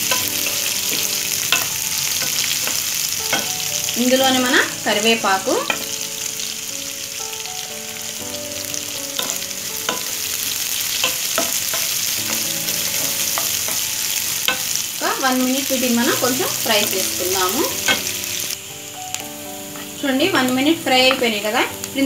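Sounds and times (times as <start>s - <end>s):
spatula scraping and tapping pan: 0.0s - 4.4s, 9.2s - 14.8s, 16.1s - 18.3s
vegetables sizzling in hot oil: 0.0s - 22.0s.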